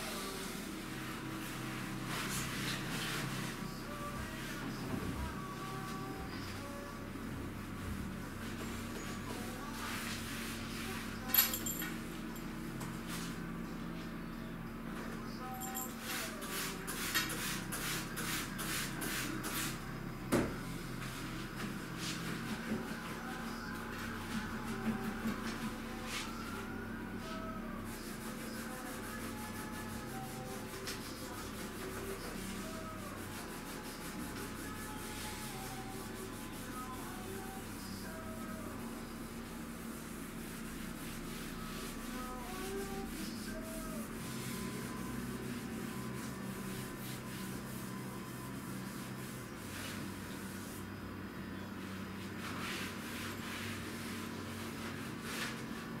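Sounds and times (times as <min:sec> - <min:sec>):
steady low hum: 0:00.0 - 0:56.0
hand scrubbing a worktop: 0:15.7 - 0:19.8, 0:27.2 - 0:50.8, 0:52.4 - 0:55.8.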